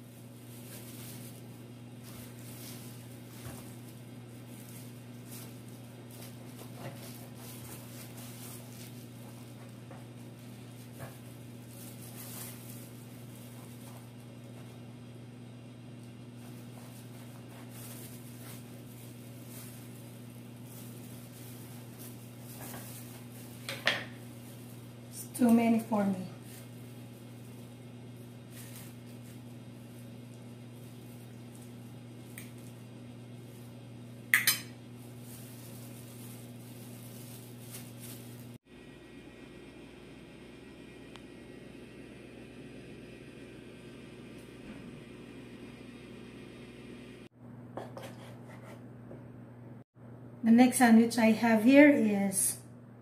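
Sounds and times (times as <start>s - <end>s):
steady low hum: 0.0s - 53.0s
knife cutting bread crust: 16.4s - 18.6s.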